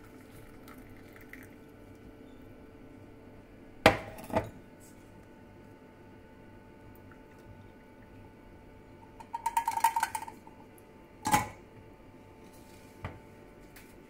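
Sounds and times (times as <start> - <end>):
mug knocking on cooktop: 3.9 - 4.5
metal tea infuser rattling: 9.2 - 10.4
infuser ringing clunk in pot: 11.2 - 11.6.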